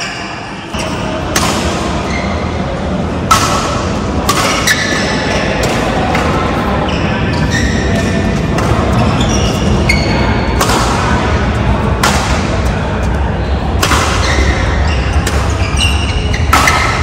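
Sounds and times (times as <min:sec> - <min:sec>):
racket hitting shuttlecock: 0:01.3 - 0:01.9, 0:03.3 - 0:06.5, 0:07.8 - 0:13.1, 0:13.8 - 0:17.0
shoes squeaking on court: 0:06.4 - 0:10.5, 0:14.1 - 0:17.0.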